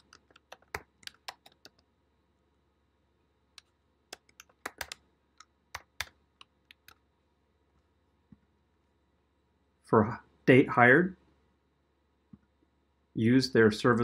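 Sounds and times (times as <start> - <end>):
keyboard keystrokes: 0.0 - 1.8, 3.6 - 5.0.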